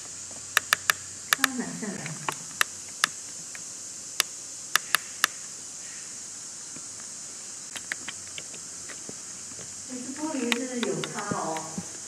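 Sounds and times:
high-pitched insect chorus: 0:00.0 - 0:12.0
sharp clicks: 0:00.5 - 0:03.6, 0:04.2 - 0:05.4, 0:07.7 - 0:08.6, 0:10.4 - 0:11.9.

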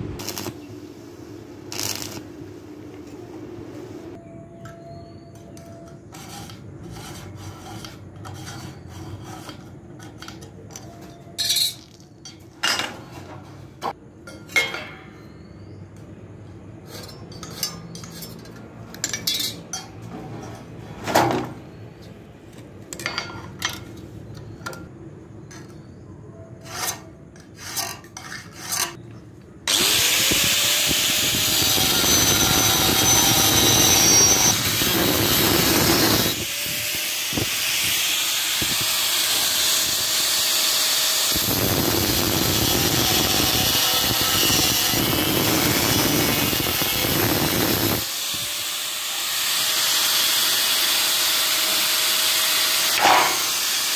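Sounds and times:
metal scrapes and knocks: 0:05.3 - 0:15.2, 0:16.8 - 0:22.1, 0:26.6 - 0:29.0, 0:53.0 - 0:53.5
angle grinder cutting: 0:29.7 - 0:53.9.

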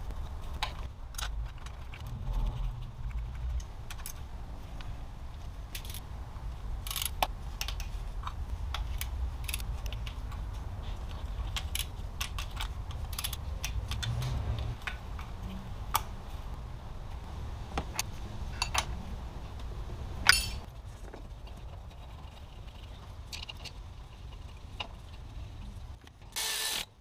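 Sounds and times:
low steady rumble: 0:00.0 - 0:26.0
metal parts clinking: 0:05.7 - 0:06.0, 0:06.8 - 0:07.8
ratchet wrench clicks: 0:06.9 - 0:07.2.

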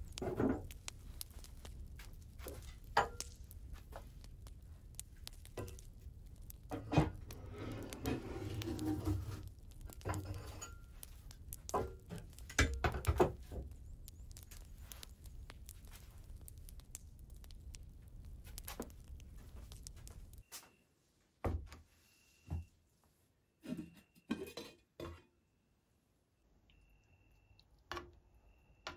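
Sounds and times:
rustling: 0:00.0 - 0:20.7.

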